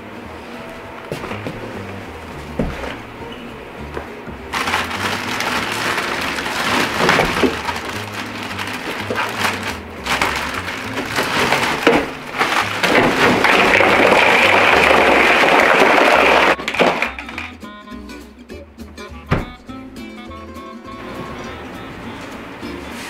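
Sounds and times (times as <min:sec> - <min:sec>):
background music: 0:00.5 - 0:23.0
ice rattling in plastic bag: 0:04.5 - 0:17.4
ice pouring into cooler: 0:04.6 - 0:17.2.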